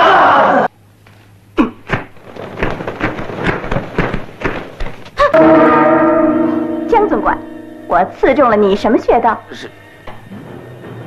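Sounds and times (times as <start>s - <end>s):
fight thuds: 1.6s - 5.3s
loud held music chord: 5.4s - 9.3s.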